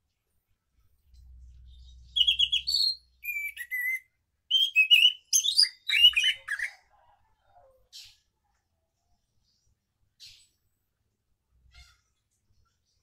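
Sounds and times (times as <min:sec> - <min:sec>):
thrush singing whistled trills: 0:01.8 - 0:06.8.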